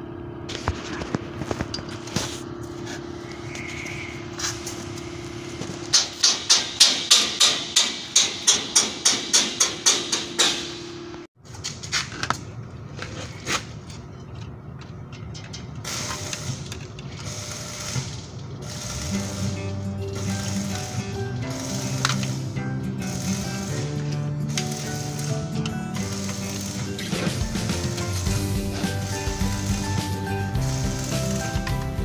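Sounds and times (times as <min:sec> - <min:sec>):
rapid hammer blows: 0:02.9 - 0:11.1, 0:15.9 - 0:32.0.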